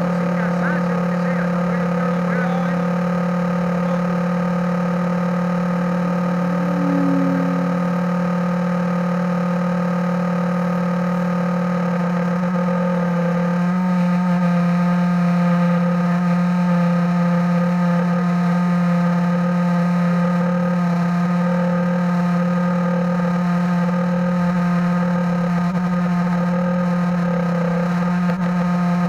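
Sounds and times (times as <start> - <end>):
model airplane engine running: 0.0 - 8.5.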